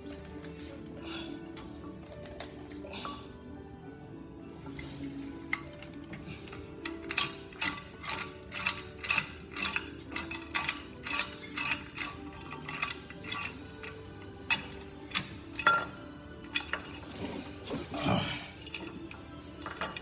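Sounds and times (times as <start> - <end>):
hand tools clicking on metal: 4.8 - 17.2, 18.6 - 20.0.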